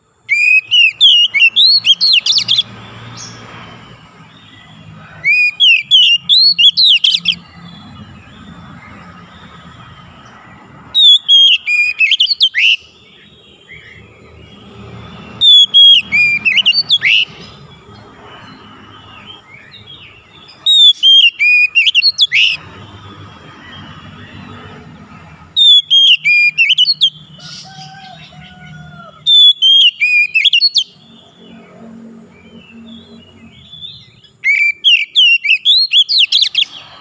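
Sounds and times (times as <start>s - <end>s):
bird singing whistled phrases: 0.3s - 3.4s, 5.2s - 7.4s, 11.0s - 12.9s, 15.4s - 17.4s, 19.3s - 22.6s, 25.6s - 28.2s, 29.3s - 31.0s, 33.0s - 36.8s.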